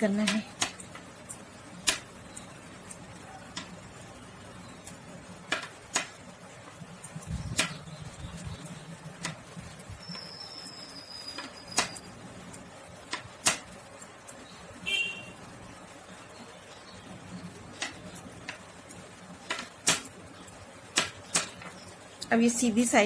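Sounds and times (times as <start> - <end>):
knitting needles clicking: 0.0 - 3.8, 4.8 - 14.5, 17.7 - 22.4.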